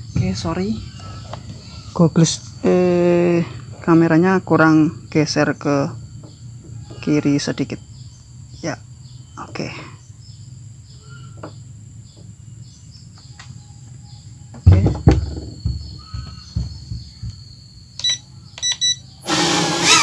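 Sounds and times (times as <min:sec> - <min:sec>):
low thumps: 0:14.5 - 0:18.0
drone motors whining: 0:15.6 - 0:20.0.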